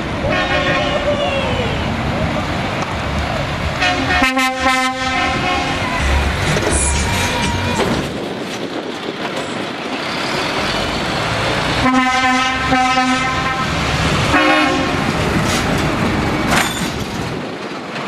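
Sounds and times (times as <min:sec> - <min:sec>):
truck diesel engines: 0:00.0 - 0:18.0
lorry air horn blasts: 0:03.8 - 0:06.0, 0:11.8 - 0:13.7, 0:14.3 - 0:15.0.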